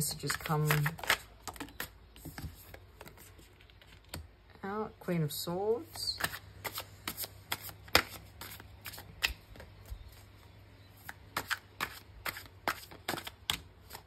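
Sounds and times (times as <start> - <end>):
cards being shuffled: 0.0 - 4.3, 6.2 - 10.4, 11.0 - 14.0.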